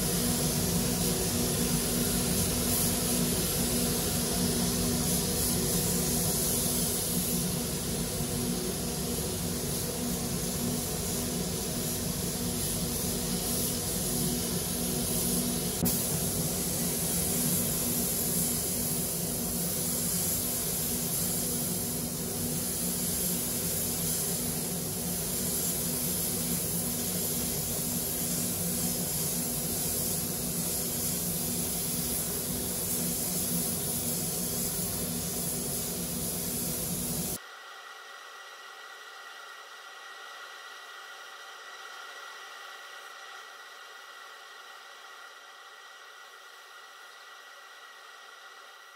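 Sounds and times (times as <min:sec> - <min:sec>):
paint spray gun hissing: 0:00.0 - 0:37.4.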